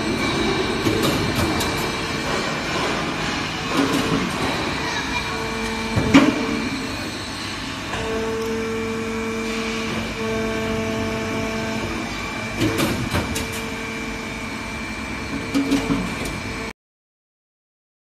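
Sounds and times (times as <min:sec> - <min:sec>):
molding machine humming: 0:00.0 - 0:16.7.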